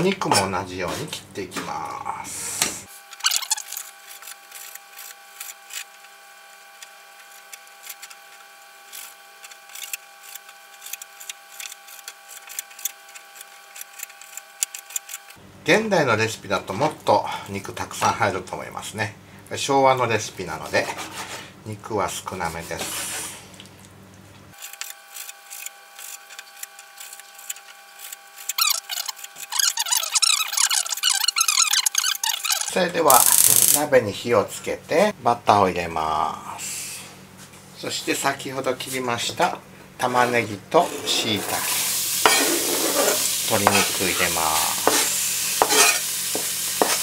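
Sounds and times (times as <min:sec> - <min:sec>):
high warbling chirps: 0:28.6 - 0:33.5
knife chopping on cutting board: 0:42.2 - 0:44.1, 0:44.7 - 0:47.0
knife tapping on cutting board: 0:44.8 - 0:45.0.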